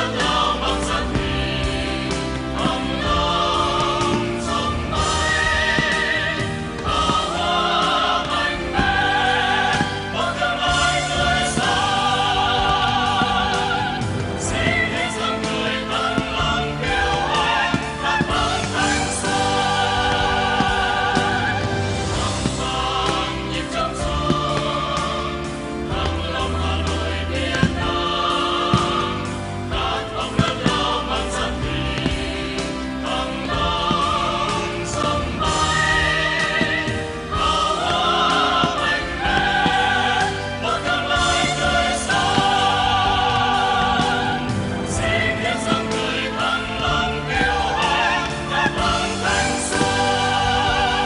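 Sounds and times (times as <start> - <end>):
choir singing held notes: 0.0 - 51.0.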